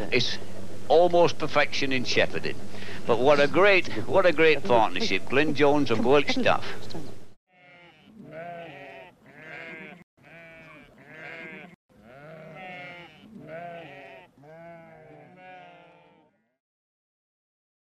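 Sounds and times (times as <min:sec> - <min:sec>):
sheep bleating: 0:07.5 - 0:16.6.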